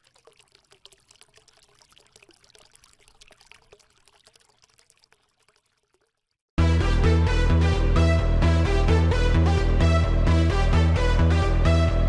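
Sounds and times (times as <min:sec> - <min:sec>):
water trickling and bubbling: 0:00.0 - 0:06.5.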